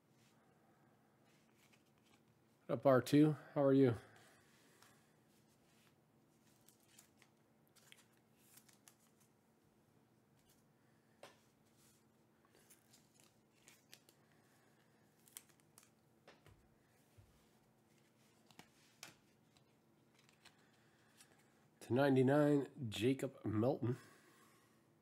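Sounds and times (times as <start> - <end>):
trading cards rustling: 1.3 - 2.4, 4.2 - 9.3, 11.3 - 16.5, 17.5 - 21.6.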